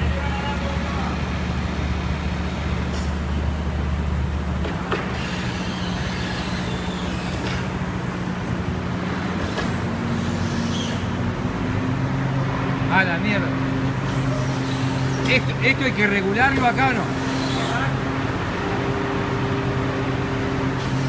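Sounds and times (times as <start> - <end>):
hydraulic drive humming: 4.5 - 11.2.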